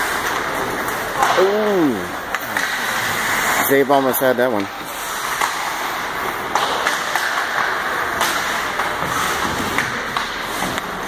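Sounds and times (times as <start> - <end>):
hockey sticks and puck clacking: 0.0 - 11.0
skates hissing on ice: 4.9 - 6.5, 8.4 - 11.0.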